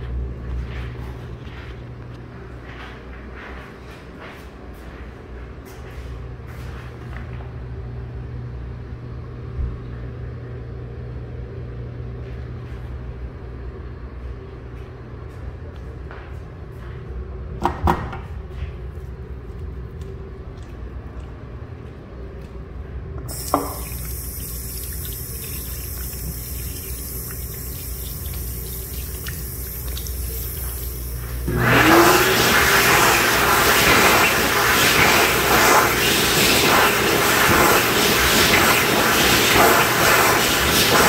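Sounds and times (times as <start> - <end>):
faucet running over hands: 23.3 - 41.0.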